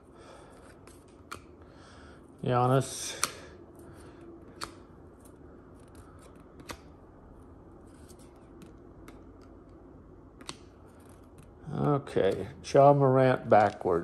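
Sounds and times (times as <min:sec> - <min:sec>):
card edges snapping: 0:00.6 - 0:01.6, 0:03.0 - 0:03.6, 0:04.4 - 0:07.0, 0:07.9 - 0:12.5
trading cards rustling: 0:02.8 - 0:14.0.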